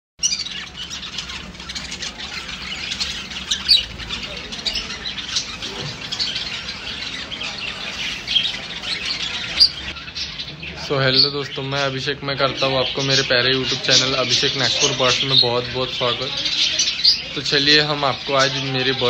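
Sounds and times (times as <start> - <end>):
budgerigars chirping: 0.2 - 19.0.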